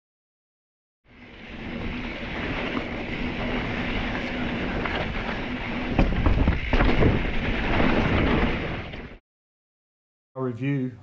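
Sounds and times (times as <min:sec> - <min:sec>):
bike knocking and rattling over bumps: 0:01.1 - 0:09.2
knobby tyres rolling on dirt: 0:01.1 - 0:09.2
wind rushing over microphone: 0:01.1 - 0:09.2.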